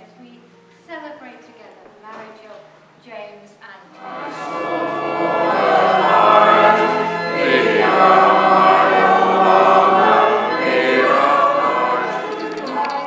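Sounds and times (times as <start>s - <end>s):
church choir singing: 3.8s - 13.0s.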